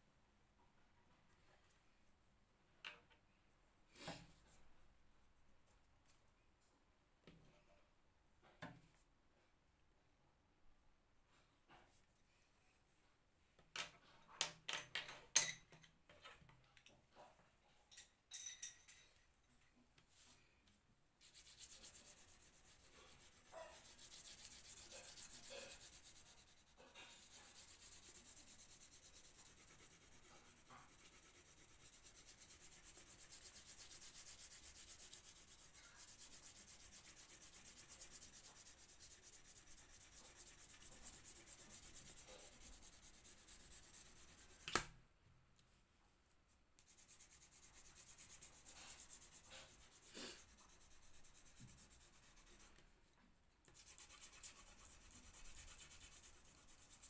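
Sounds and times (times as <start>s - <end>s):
pencil rubbing on paper: 21.2s - 44.8s, 46.8s - 52.8s, 53.7s - 57.0s.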